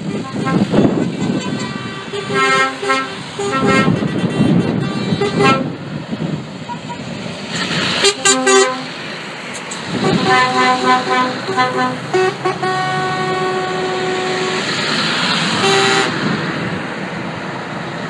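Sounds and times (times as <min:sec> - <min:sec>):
lorry air horns: 0:00.0 - 0:05.8, 0:08.0 - 0:09.0, 0:09.9 - 0:14.7, 0:15.6 - 0:16.2
diesel truck engines rumbling: 0:00.0 - 0:18.0.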